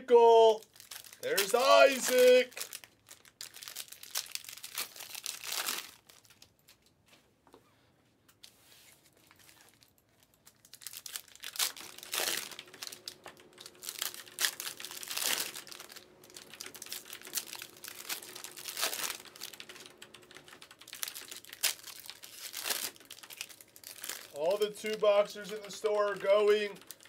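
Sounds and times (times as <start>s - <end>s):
foil wrappers crinkling: 0.2s - 6.9s, 9.0s - 27.0s.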